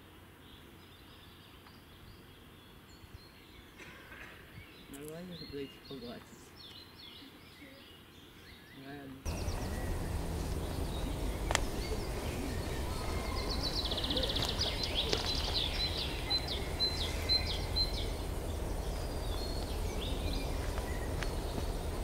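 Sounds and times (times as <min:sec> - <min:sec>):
songbird singing: 0:00.0 - 0:22.0
wind buffeting microphone: 0:09.3 - 0:22.0.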